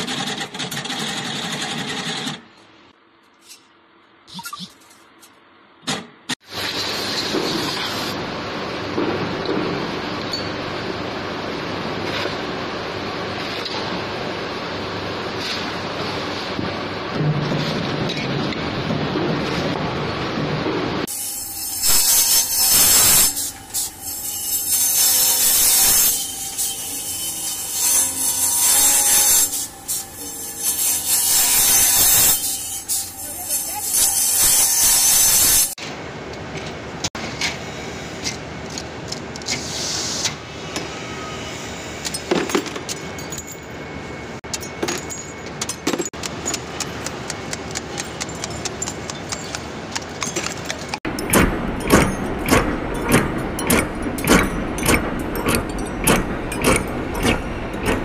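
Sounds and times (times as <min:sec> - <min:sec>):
metal grinding on abrasive wheel: 0:21.1 - 0:35.8
quiet machine running: 0:51.0 - 0:58.0.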